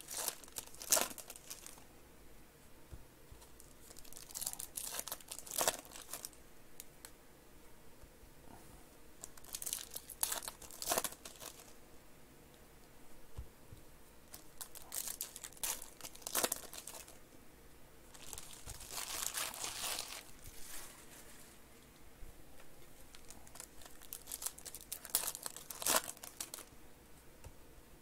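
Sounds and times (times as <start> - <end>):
foil wrappers crinkling and tearing: 0.0 - 1.8, 3.5 - 6.4, 9.2 - 11.7, 14.3 - 17.2, 18.1 - 21.5, 23.1 - 26.7.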